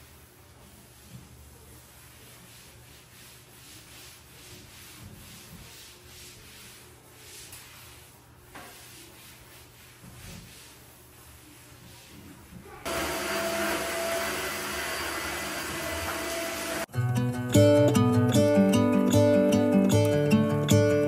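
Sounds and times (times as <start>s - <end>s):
faint scrubbing strokes: 0.0s - 15.1s.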